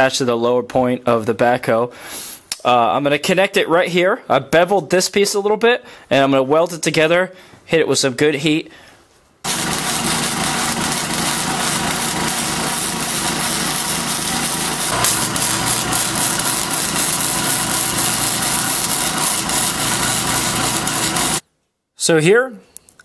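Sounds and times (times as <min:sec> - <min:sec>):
arc welding crackling sizzle: 0:09.5 - 0:21.4.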